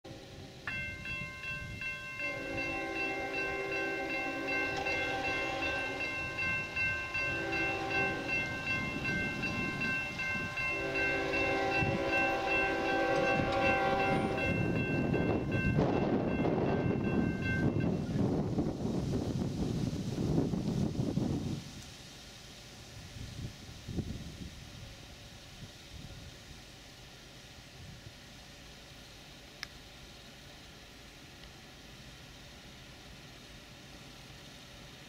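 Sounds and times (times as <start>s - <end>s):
distant locomotive horn blasts: 0.1s - 18.2s
railroad crossing bell ringing: 0.1s - 18.4s.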